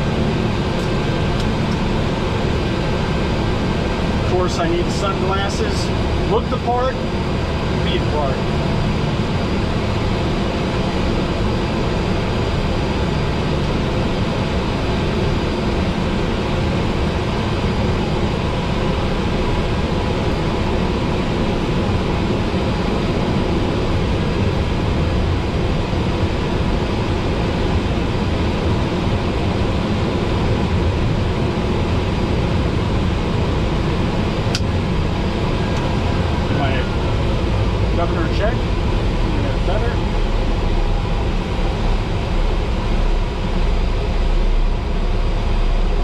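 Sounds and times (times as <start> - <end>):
turboprop engine droning: 0.0 - 46.0
faint high whine: 26.0 - 46.0.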